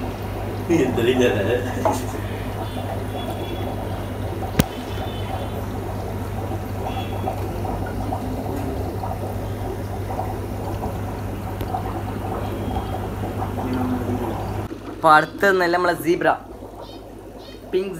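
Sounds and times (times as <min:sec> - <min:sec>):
water pouring and bubbling: 0:00.0 - 0:17.9
sharp click: 0:04.6 - 0:04.8.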